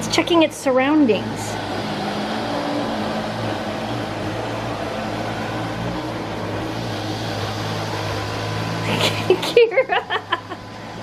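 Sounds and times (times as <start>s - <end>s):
robot vacuum humming: 0.0s - 11.0s.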